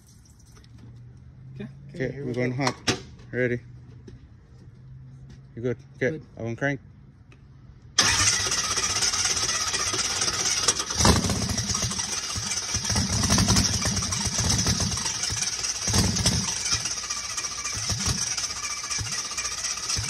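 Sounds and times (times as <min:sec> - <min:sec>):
engine coughing and sputtering: 0:08.0 - 0:20.0
engine starter cranking: 0:08.0 - 0:20.0.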